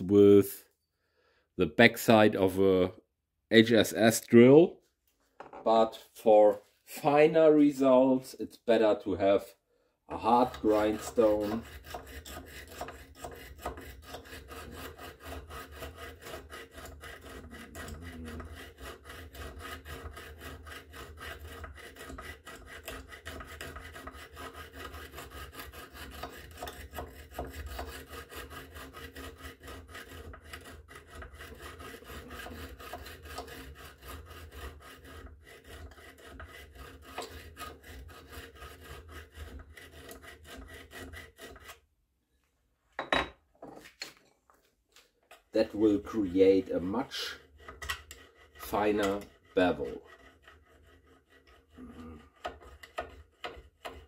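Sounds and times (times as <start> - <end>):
sharpening stone rasping on steel blade: 10.3 - 41.8.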